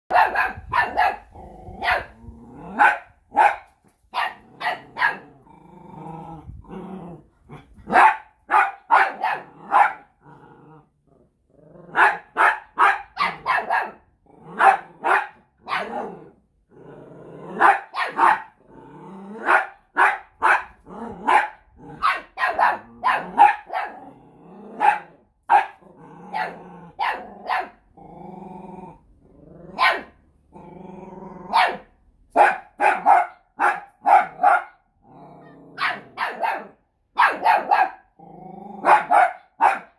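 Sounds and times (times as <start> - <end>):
small dogs barking: 0.1 - 5.4, 7.6 - 10.2, 11.9 - 16.2, 17.5 - 18.6, 19.4 - 27.9, 29.7 - 30.2, 31.5 - 34.8, 35.4 - 38.2, 38.8 - 39.9
dog growling: 1.2 - 2.9, 4.4 - 8.0, 9.4 - 12.1, 14.2 - 15.0, 15.8 - 17.7, 18.5 - 19.6, 20.8 - 22.1, 22.8 - 29.9, 30.5 - 31.6, 35.0 - 36.2, 38.2 - 39.1.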